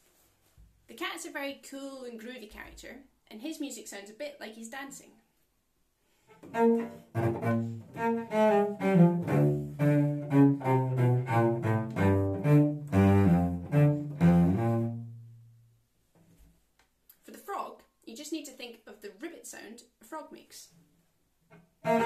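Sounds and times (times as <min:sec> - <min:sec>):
solo cello tune: 0:06.3 - 0:15.7, 0:21.5 - 0:22.0.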